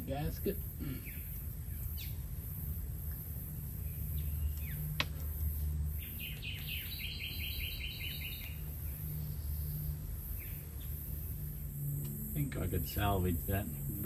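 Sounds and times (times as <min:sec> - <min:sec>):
small birds chirping: 0:00.0 - 0:14.0
fast bird trill: 0:06.0 - 0:10.6.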